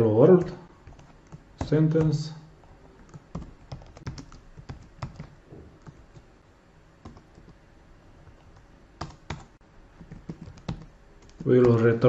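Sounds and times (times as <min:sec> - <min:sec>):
computer keyboard typing: 0:00.4 - 0:02.2, 0:03.0 - 0:06.3, 0:07.0 - 0:07.6, 0:08.2 - 0:12.0.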